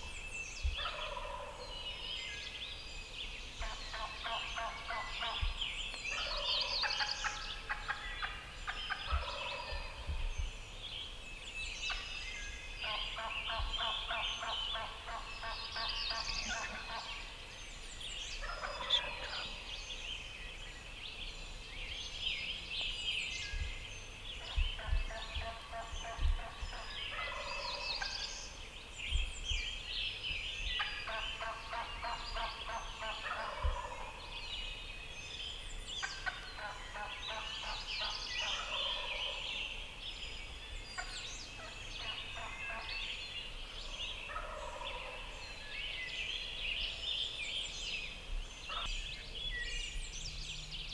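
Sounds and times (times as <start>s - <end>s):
songbirds chirping: 0.0s - 50.9s
turkey gobbling: 6.2s - 9.8s, 12.9s - 17.1s, 18.5s - 19.6s, 24.4s - 27.8s, 30.8s - 34.2s, 44.3s - 45.3s.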